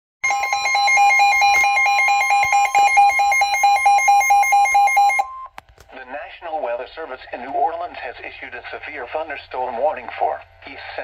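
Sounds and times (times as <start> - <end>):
steady high tone: 0.2 - 5.5.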